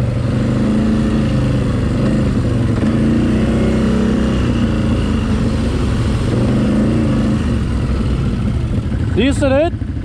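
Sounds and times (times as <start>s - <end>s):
quad bike engine running: 0.0s - 10.0s.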